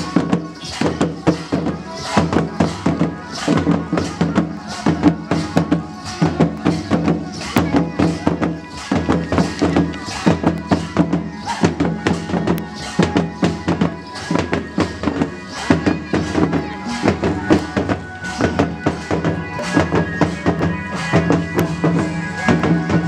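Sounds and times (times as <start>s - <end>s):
folk drums beating: 0.0s - 23.0s
droning melody: 8.1s - 23.0s.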